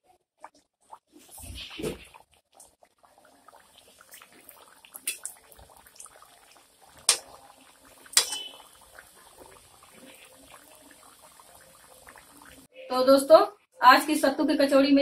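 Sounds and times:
food sizzling in hot oil: 0:00.9 - 0:12.7
metal spoon clinking on pan: 0:08.2 - 0:08.5.

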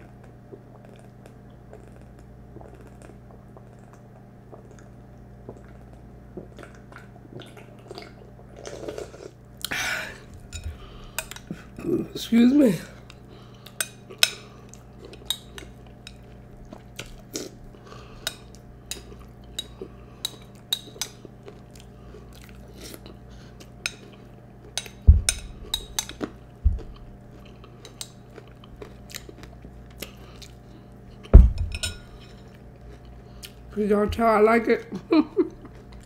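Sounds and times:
crunching and chewing cereal: 0:13.0 - 0:31.3, 0:32.1 - 0:33.8
heavy low thumps: 0:25.1 - 0:25.6, 0:31.4 - 0:31.9.

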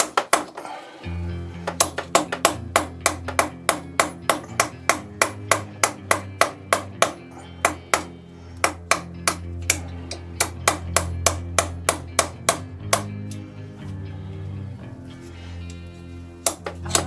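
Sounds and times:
background music: 0:00.0 - 0:17.0
hammer striking a metal drift: 0:01.6 - 0:13.3.

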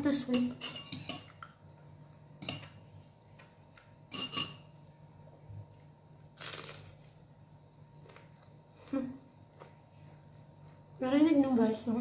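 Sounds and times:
cutlery and plate clinks: 0:04.1 - 0:04.7
crisp crunch of spring roll: 0:06.3 - 0:07.2.

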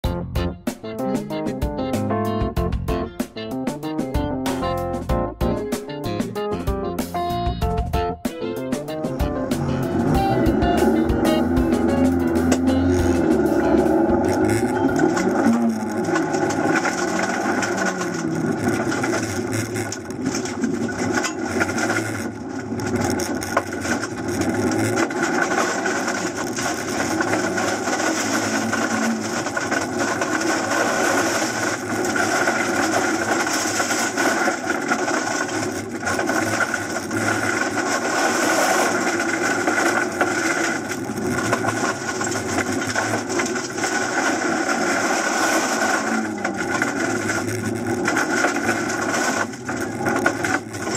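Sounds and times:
gravel rattling under car: 0:08.7 - 0:50.9
car engine revving: 0:09.1 - 0:50.9.

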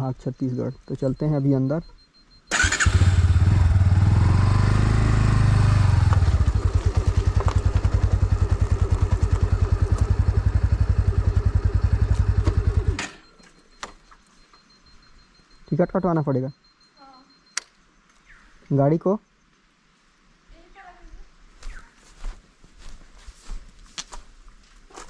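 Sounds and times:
motorcycle engine idling: 0:02.5 - 0:13.2.

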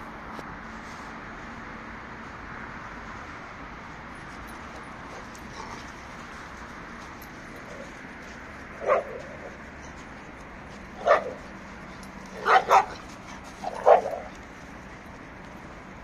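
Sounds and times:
dog barking: 0:08.8 - 0:09.4, 0:11.0 - 0:11.4, 0:12.4 - 0:13.0, 0:13.6 - 0:14.3.

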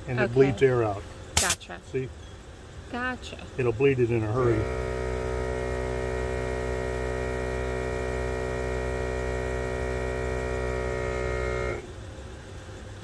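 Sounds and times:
air compressor humming: 0:01.2 - 0:01.6, 0:03.8 - 0:12.0.

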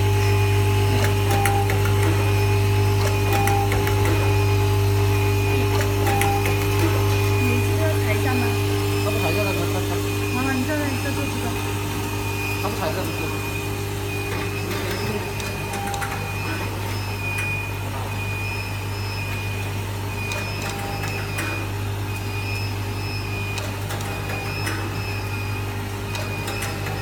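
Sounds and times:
low electric hum: 0:00.0 - 0:27.0
machine mechanism clicks: 0:26.0 - 0:27.0.

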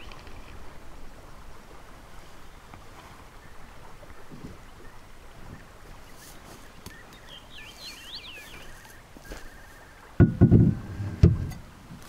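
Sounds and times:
bird chirping: 0:06.0 - 0:10.0
hollow knocks from plastic boat hull: 0:10.2 - 0:11.6.

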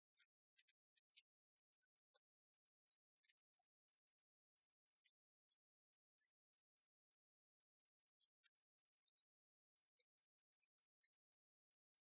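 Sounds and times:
faint high-pitched ticks: 0:00.0 - 0:12.0.

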